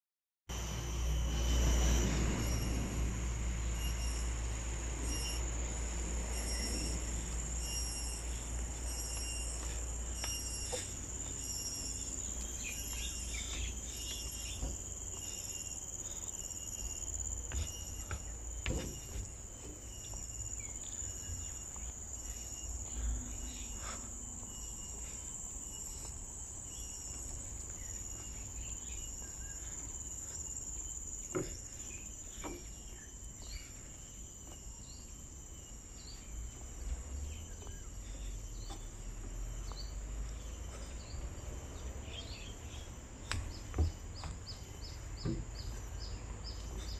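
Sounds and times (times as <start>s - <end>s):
high-pitched insect drone: 0.5s - 46.9s
bird chirps: 6.3s - 35.2s
soft knocks: 45.2s - 45.7s.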